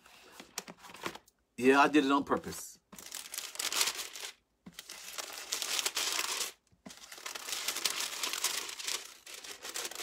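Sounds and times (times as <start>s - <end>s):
thin pages flipping: 0.3s - 1.3s, 2.9s - 10.0s.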